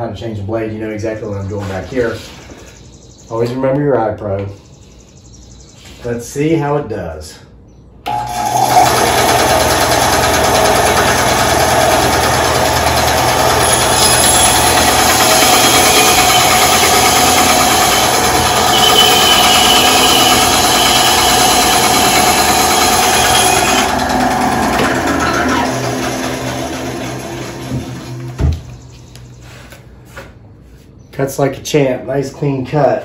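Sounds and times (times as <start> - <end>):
band saw cutting wood: 8.1 - 28.5.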